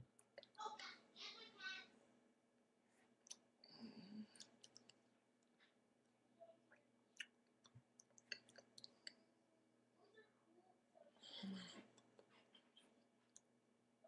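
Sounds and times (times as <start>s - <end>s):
faint clicks and soft taps: 3.0s - 9.3s, 11.5s - 13.6s.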